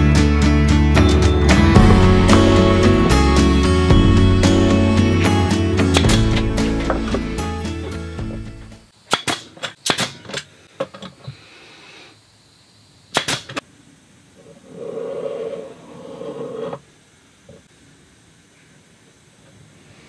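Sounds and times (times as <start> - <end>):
steady buzzy tone: 0.0 - 8.9
nail gun firing into plywood: 9.1 - 10.4, 13.1 - 13.6.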